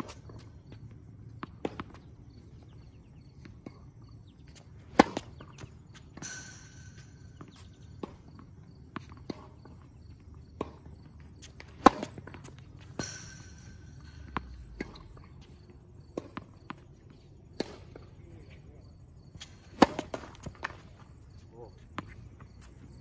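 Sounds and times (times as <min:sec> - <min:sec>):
tennis racket striking ball: 0:04.5 - 0:08.2, 0:11.4 - 0:15.1, 0:19.4 - 0:20.8
ball bouncing on court: 0:11.4 - 0:15.4.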